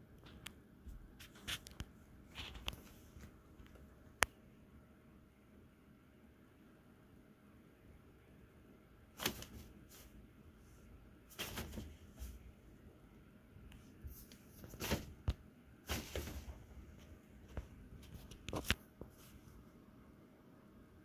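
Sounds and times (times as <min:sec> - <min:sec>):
nylon tunnel rustling and crinkling: 0:15.9 - 0:17.2.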